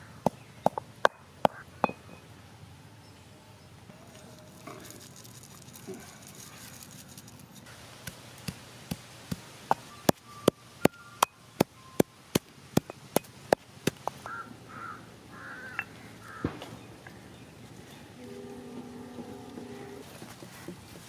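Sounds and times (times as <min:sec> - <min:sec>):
bird calls: 0:00.0 - 0:02.4, 0:09.7 - 0:13.3, 0:14.0 - 0:21.0.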